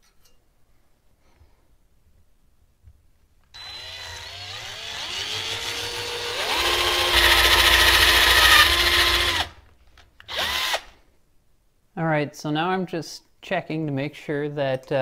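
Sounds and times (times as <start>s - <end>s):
cordless drill boring through metal: 3.6s - 9.6s, 10.2s - 10.9s.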